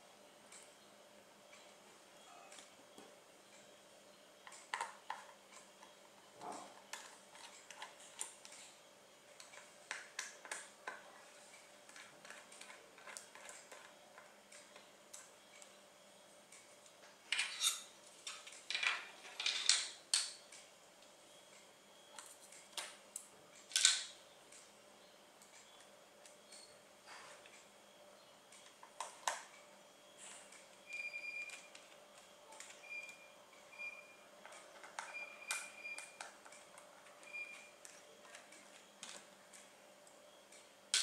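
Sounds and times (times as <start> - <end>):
screwdriver clicks and scrapes: 17.4 - 17.8.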